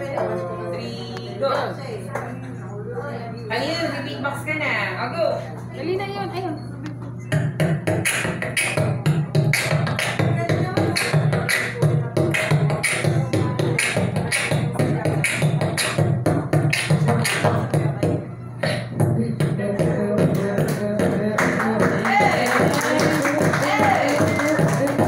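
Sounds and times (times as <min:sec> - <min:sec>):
person beatboxing into a microphone: 0:07.3 - 0:25.0.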